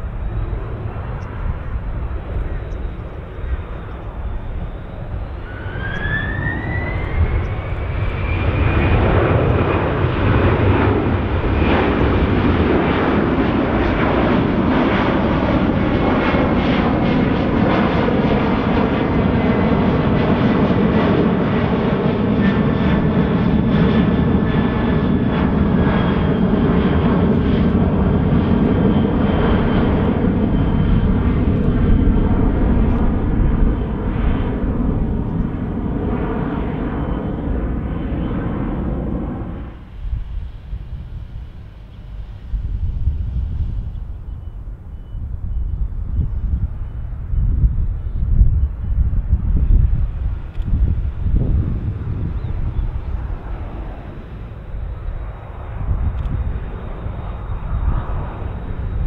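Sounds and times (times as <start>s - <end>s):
jet engines spooling up: 0.0s - 16.6s, 24.2s - 59.0s
jet airliner climbing overhead: 0.0s - 59.0s.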